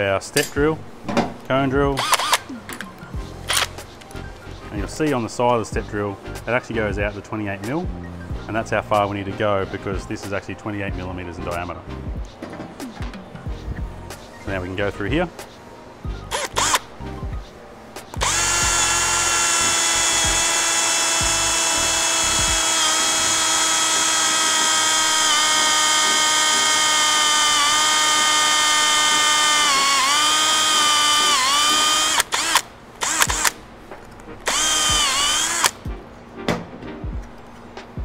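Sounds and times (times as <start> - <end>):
cordless drill whining through plastic: 2.0 - 2.4, 16.3 - 16.8, 18.2 - 33.5, 34.5 - 35.8.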